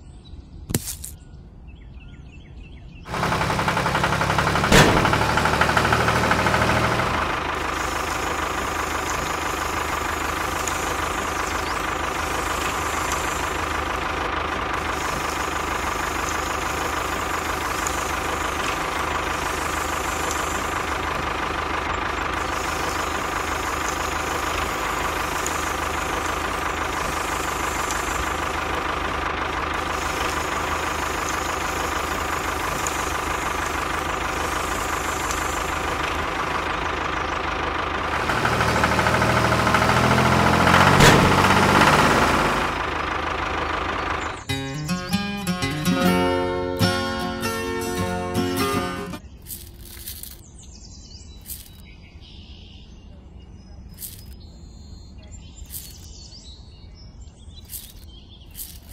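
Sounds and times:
miniature tractor engine running: 3.1s - 50.4s, 51.5s - 51.8s, 54.0s - 54.4s, 55.7s - 56.1s, 57.7s - 58.0s, 58.6s - 58.9s
music: 44.5s - 49.2s.

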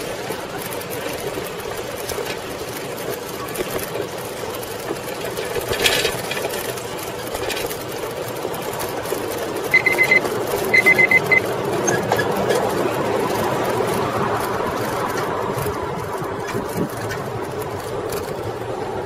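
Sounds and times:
bicycle rattle and tire rumble: 0.0s - 19.0s
rapid high beeping: 9.7s - 11.5s.

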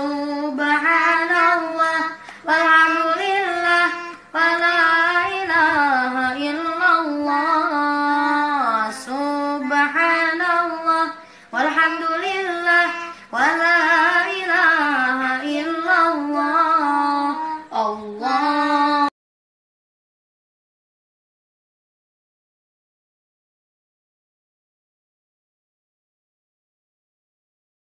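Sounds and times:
child chanting melodic recitation: 0.0s - 19.1s.

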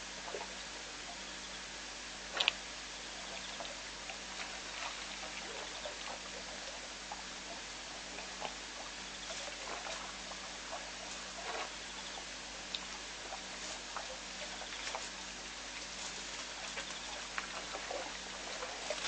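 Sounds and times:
steady hiss: 0.0s - 19.0s
sharp click: 2.4s - 2.6s.

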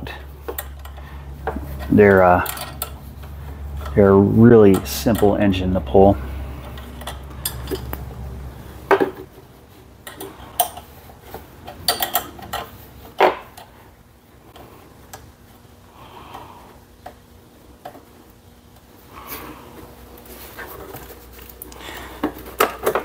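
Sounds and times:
metallic clicks and clinks: 1.8s - 3.0s, 6.6s - 8.1s, 11.7s - 12.8s.

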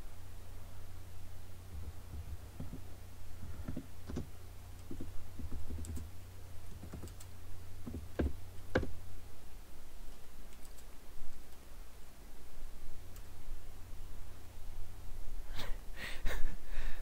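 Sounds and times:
steady low hum: 0.0s - 17.0s
typing on computer keyboard: 4.9s - 6.1s, 6.7s - 7.3s, 10.5s - 10.9s.

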